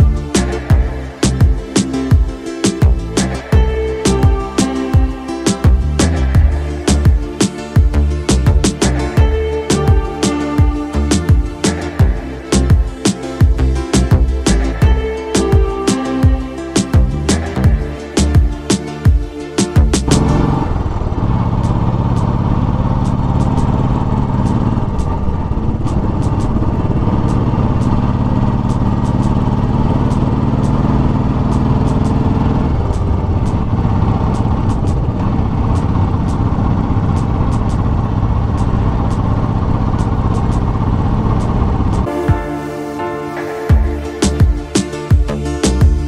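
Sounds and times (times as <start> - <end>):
motorcycle engine running: 0.0 - 42.6, 43.7 - 46.0
low rumbling noise: 0.0 - 46.0.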